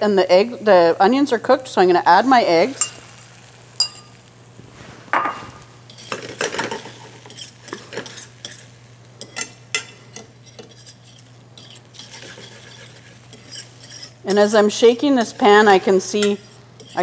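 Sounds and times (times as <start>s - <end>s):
eggs sizzling in butter: 0.0s - 17.0s
fork scraping metal pan: 5.9s - 8.6s, 9.2s - 17.0s.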